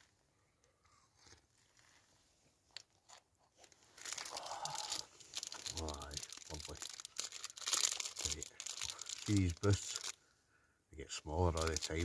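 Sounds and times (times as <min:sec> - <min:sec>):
faint rustles and clicks: 0:00.0 - 0:10.2, 0:11.4 - 0:12.0
plastic wrapper crinkling: 0:03.0 - 0:10.2, 0:11.4 - 0:12.0.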